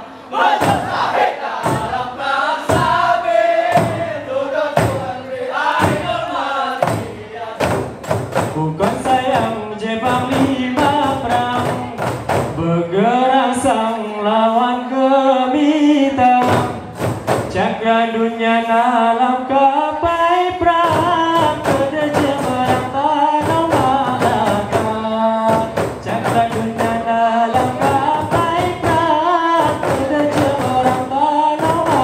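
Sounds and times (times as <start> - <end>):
men singing in unison: 0.3 - 32.0
frame drum strikes: 0.4 - 12.8, 16.4 - 17.8, 20.6 - 32.0.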